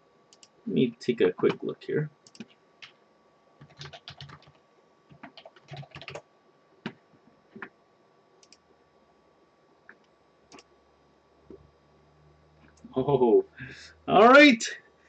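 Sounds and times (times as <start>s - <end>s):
keyboard keystrokes: 3.6s - 4.5s, 5.1s - 6.2s.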